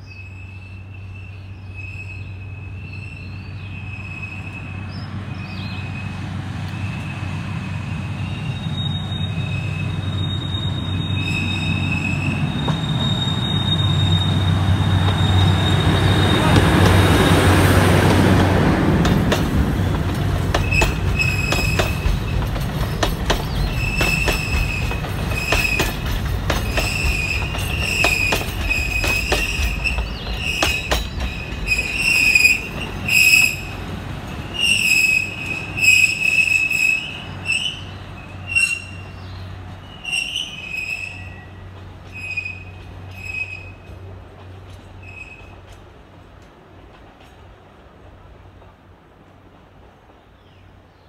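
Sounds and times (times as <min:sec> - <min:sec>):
diesel locomotive rumble: 0:00.2 - 0:50.2
high-pitched wheel squeal: 0:08.1 - 0:16.6, 0:26.7 - 0:33.8, 0:34.5 - 0:39.2, 0:39.9 - 0:43.8
train wheels clacking over rail joints: 0:15.8 - 0:37.1, 0:41.6 - 0:48.8.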